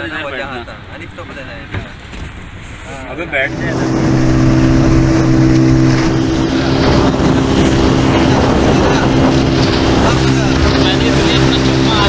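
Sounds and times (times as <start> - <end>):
water rushing: 0.0 - 12.0
motorboat engine drone: 3.3 - 12.0
wind rushing: 3.4 - 11.9.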